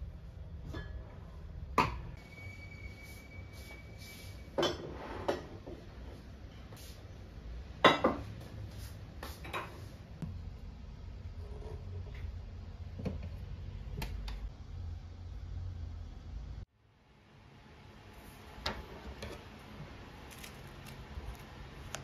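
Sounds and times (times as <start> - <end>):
dishes clinking on a table: 4.6 - 5.8, 7.8 - 8.3.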